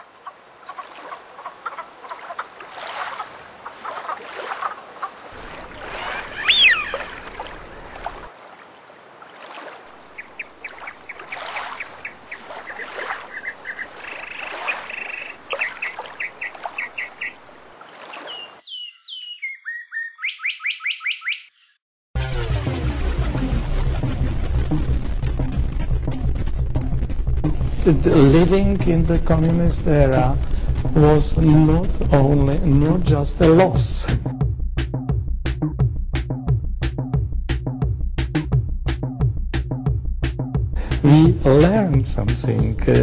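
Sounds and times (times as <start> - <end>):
frogs calling: 0.0 - 8.2, 9.6 - 21.8
birds calling: 0.0 - 8.3, 9.3 - 21.8
quick rising chirps: 6.0 - 7.5.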